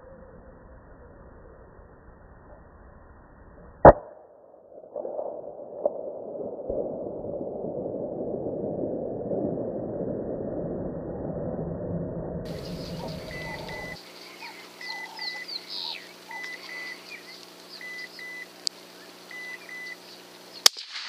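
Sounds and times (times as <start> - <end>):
steady rushing noise: 12.5 - 19.8
muffled rifle shot: 20.6 - 21.0.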